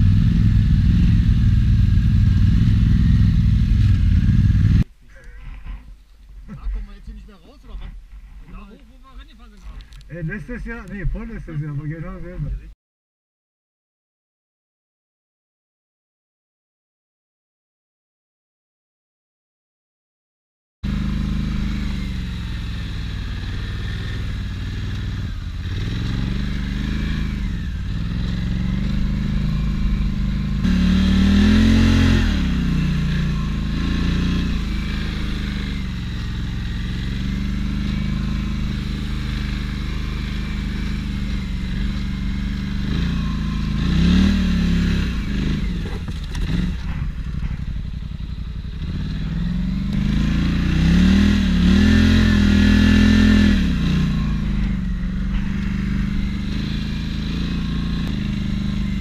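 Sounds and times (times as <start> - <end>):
quad bike engine revving: 0.0 - 4.8, 20.8 - 59.0.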